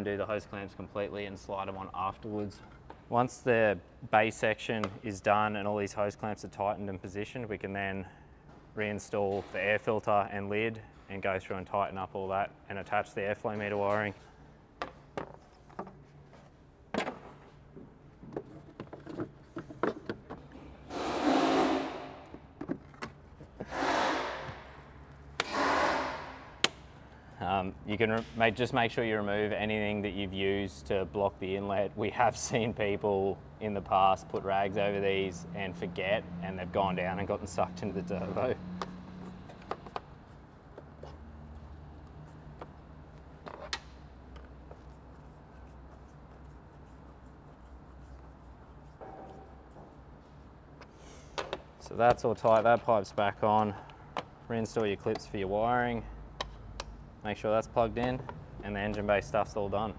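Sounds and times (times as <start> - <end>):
hands rubbing over plastic and rubber: 22.4 - 23.7, 37.5 - 53.4.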